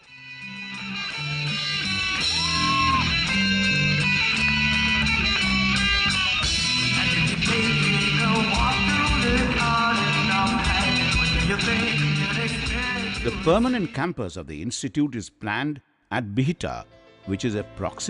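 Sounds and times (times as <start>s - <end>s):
rock band playing: 0.0s - 13.9s
electric guitar bend: 0.4s - 13.5s.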